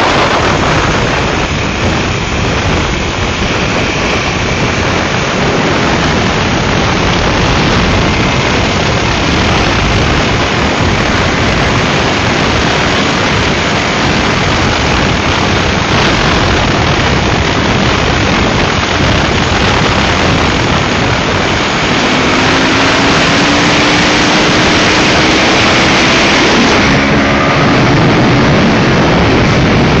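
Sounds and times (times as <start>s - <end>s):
motorcycle engine running: 0.0s - 30.0s
wind rush over microphone: 0.0s - 30.0s.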